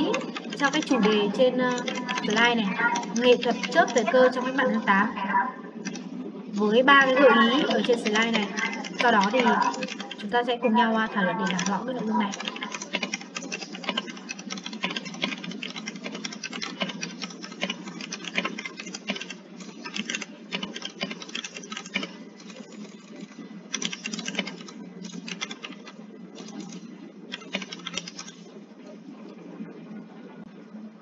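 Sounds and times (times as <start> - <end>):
typing on computer keyboard: 0.0 - 4.2, 5.8 - 6.1, 7.5 - 10.2, 11.4 - 28.5
low background noise: 0.0 - 31.0.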